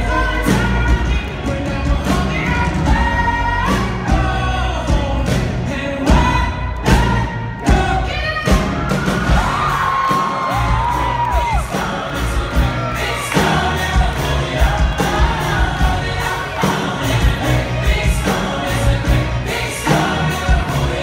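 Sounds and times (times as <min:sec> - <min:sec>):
lead vocal singing: 0:00.0 - 0:21.0
live pop-rock band playing: 0:00.0 - 0:21.0
audience cheering and whooping: 0:08.2 - 0:18.0.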